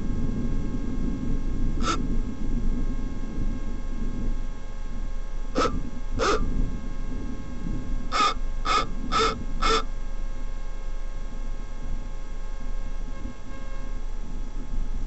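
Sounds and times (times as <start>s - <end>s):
low rumble: 0.0s - 15.0s
harsh animal calls: 1.8s - 2.0s, 5.6s - 6.5s, 8.1s - 9.9s.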